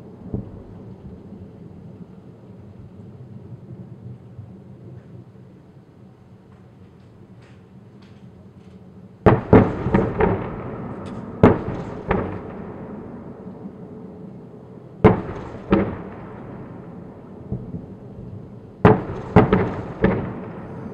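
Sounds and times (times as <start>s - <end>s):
distant artillery booms: 9.2s - 13.7s, 15.0s - 20.9s.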